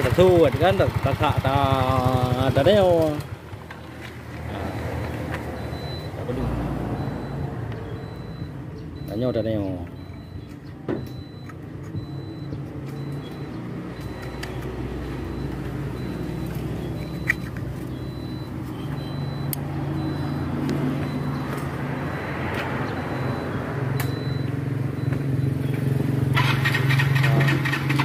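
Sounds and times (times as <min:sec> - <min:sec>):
vehicle engine running: 0:00.0 - 0:06.0, 0:11.2 - 0:28.0.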